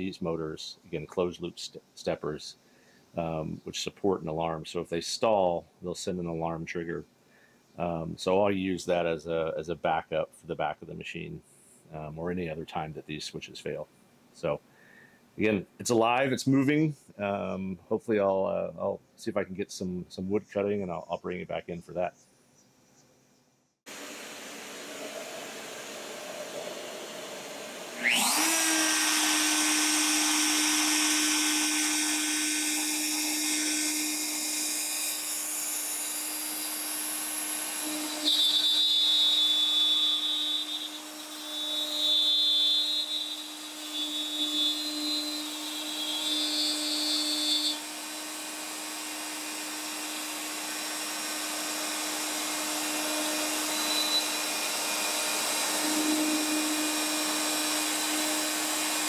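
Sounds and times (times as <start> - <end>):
dust extraction vacuum hiss: 23.9 - 41.8, 45.4 - 59.0
router bit cutting plywood: 23.9 - 59.0
router motor whine: 23.9 - 59.0.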